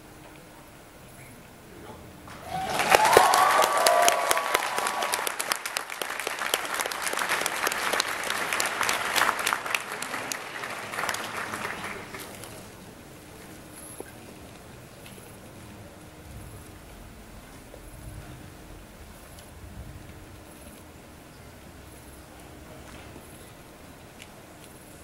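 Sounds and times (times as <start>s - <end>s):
audience cheering: 2.3s - 12.4s
large audience applauding: 2.3s - 12.8s.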